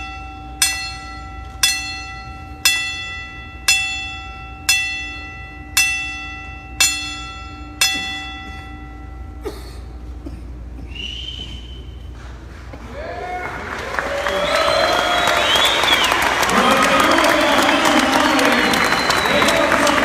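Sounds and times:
boxing ring bell strikes: 0.0s - 9.7s.

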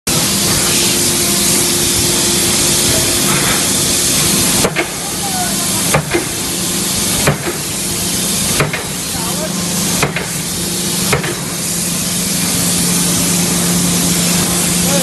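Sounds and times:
loud steady hiss: 0.1s - 15.0s
forging hammer striking: 4.5s - 5.0s, 5.9s - 6.4s, 7.2s - 7.6s, 8.5s - 9.0s, 10.0s - 10.4s, 11.1s - 11.5s.

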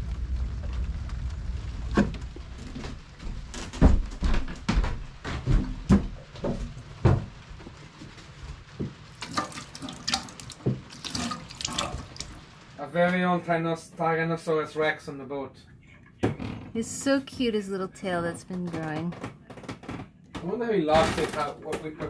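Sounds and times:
low rumble: 0.0s - 4.0s
tap water running and splashing: 5.9s - 12.8s
metal pans clattering in a sink: 9.2s - 10.4s.

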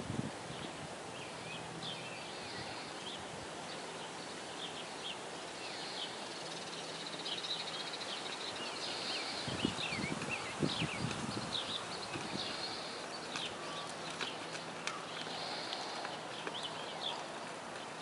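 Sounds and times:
birds chirping: 0.0s - 18.0s
outdoor hiss: 0.0s - 18.0s
horse hooves thudding in sand: 9.6s - 18.0s.

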